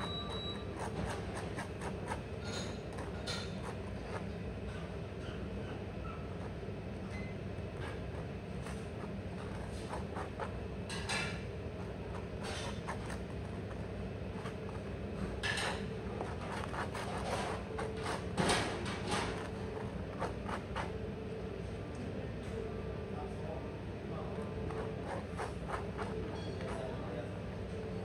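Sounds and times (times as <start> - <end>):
knife scraping toast: 0.0 - 4.3, 15.4 - 21.0, 24.6 - 26.9
restaurant background hum: 0.0 - 28.0.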